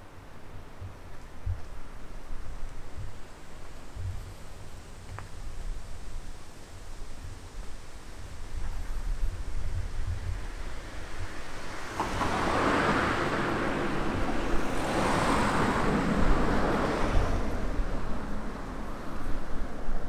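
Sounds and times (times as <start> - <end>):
road vehicle passing close: 11.1 - 19.1.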